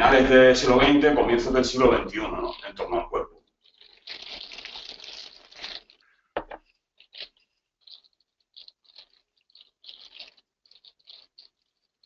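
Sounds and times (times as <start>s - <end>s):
soft rustling: 3.5s - 12.0s.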